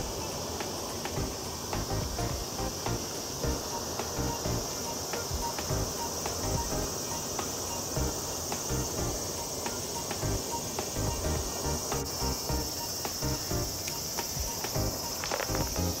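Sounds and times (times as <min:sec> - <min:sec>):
insects droning: 0:00.0 - 0:16.0
music with low beat: 0:01.0 - 0:16.0.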